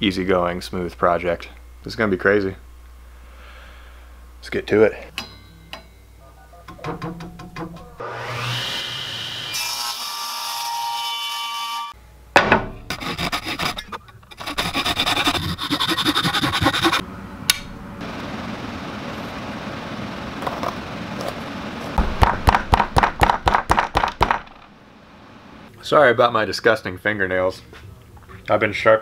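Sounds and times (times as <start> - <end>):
table saw cutting wood: 8.0 - 12.0, 12.9 - 17.0
hand sawing and rasping wood: 12.9 - 17.0.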